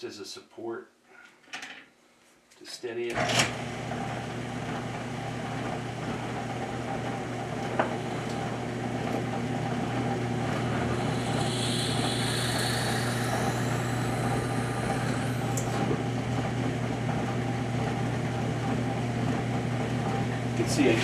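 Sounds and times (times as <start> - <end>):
drill press motor hum: 3.2 - 20.7
drill bit cutting wood hiss: 10.5 - 15.9.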